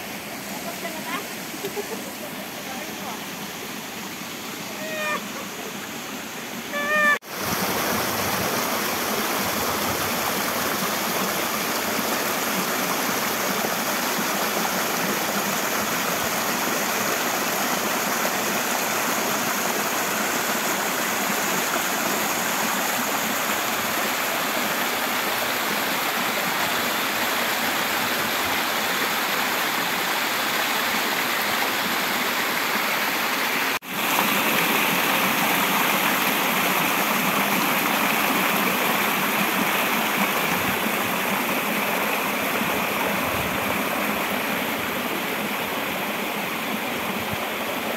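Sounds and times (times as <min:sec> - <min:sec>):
stream water rushing: 0:00.0 - 0:47.9
short high call: 0:06.7 - 0:07.2.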